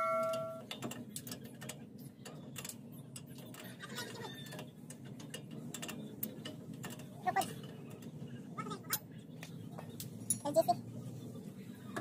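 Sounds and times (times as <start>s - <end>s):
bell-like ding: 0.0s - 0.6s
low background hum: 0.0s - 12.0s.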